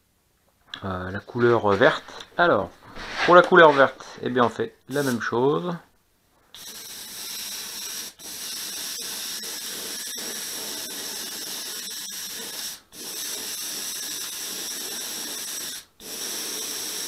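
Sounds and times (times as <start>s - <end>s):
airbrush spraying hiss: 4.9s - 5.2s, 6.6s - 17.0s.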